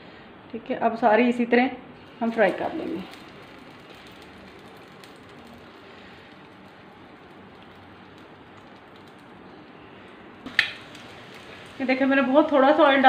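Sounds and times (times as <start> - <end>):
meat sizzling in oil: 2.2 - 13.0.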